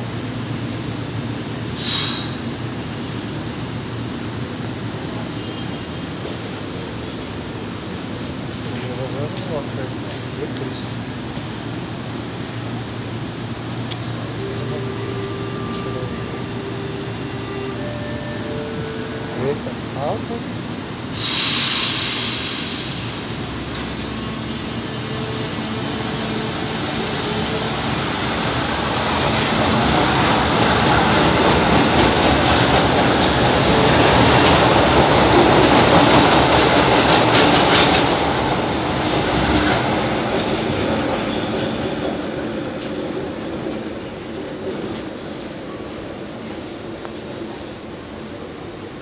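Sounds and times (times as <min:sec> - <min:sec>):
train passing on elevated track: 0:00.0 - 0:49.0.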